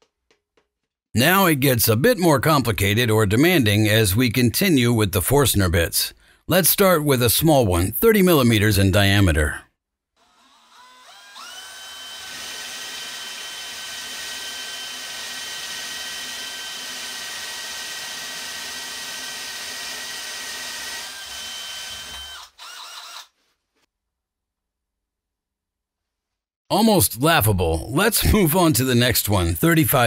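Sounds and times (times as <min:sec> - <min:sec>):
cordless drill boring into wood: 0:10.2 - 0:23.4.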